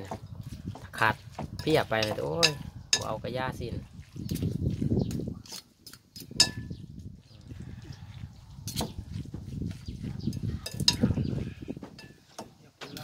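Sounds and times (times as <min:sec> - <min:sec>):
wet squelching of meat stirring: 0:00.0 - 0:13.0
spoon clinking on bowl: 0:01.6 - 0:03.2, 0:06.4 - 0:06.8, 0:10.4 - 0:11.2, 0:12.0 - 0:12.3.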